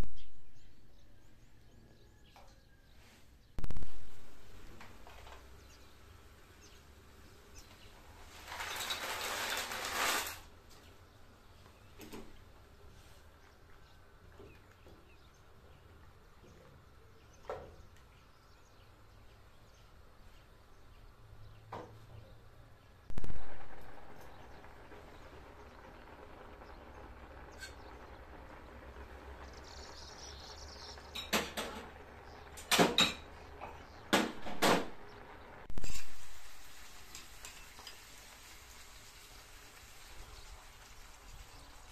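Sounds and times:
pasta poured into boiling water: 0:08.0 - 0:10.5, 0:35.8 - 0:41.9.

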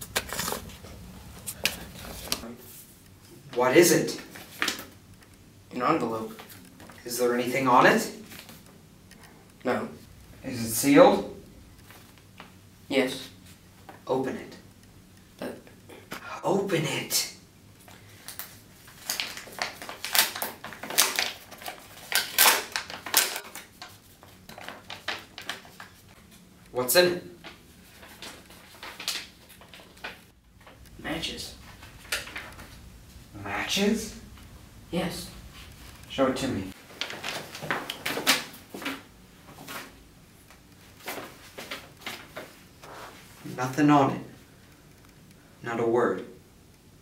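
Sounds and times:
newspaper crinkling: 0:00.0 - 0:02.4, 0:17.8 - 0:26.4, 0:27.4 - 0:34.5, 0:35.1 - 0:43.4
paper envelope tearing and crinkling: 0:00.0 - 0:02.4, 0:18.3 - 0:26.0
envelope rustling in hand: 0:18.1 - 0:26.2, 0:27.4 - 0:30.9, 0:36.7 - 0:38.9.

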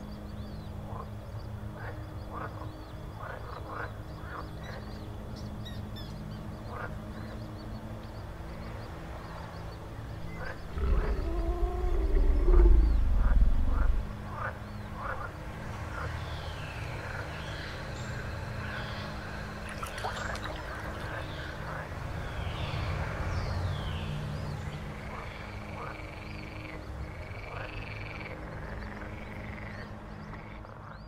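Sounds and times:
croaks and chirps: 0:00.0 - 0:31.0
low drone: 0:03.9 - 0:30.8
deep wavering rumble: 0:10.6 - 0:15.2.

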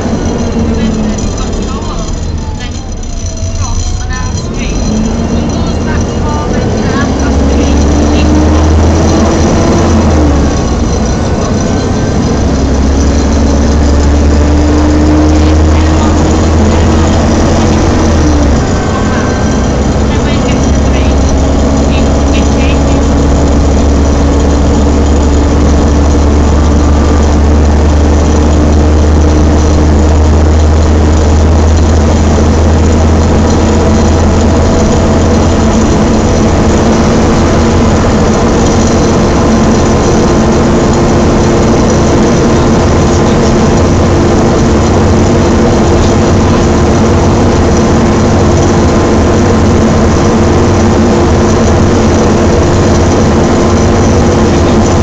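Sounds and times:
bus drivetrain drone: 0:00.0 - 0:55.0
engine cooling fan rushing: 0:00.0 - 0:55.0
gearbox whine: 0:00.0 - 0:55.0.

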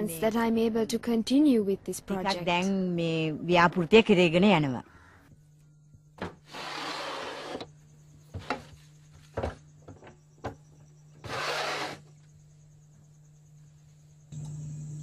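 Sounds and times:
steady low hum: 0:00.0 - 0:06.4, 0:07.1 - 0:11.2, 0:11.9 - 0:15.0
sharp knocks and clunks: 0:06.2 - 0:06.5, 0:08.2 - 0:10.8.

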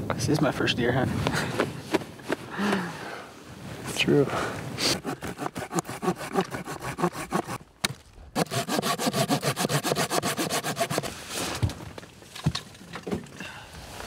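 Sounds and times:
saw cutting stick: 0:04.8 - 0:07.6, 0:08.4 - 0:11.2.

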